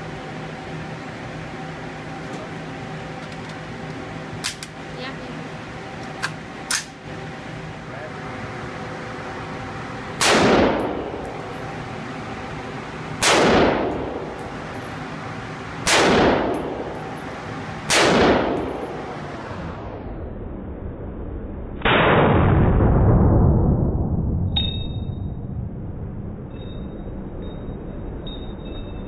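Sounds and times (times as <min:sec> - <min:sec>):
rifle shots: 0:10.2 - 0:11.3, 0:13.2 - 0:14.4, 0:15.8 - 0:17.0, 0:17.9 - 0:19.0.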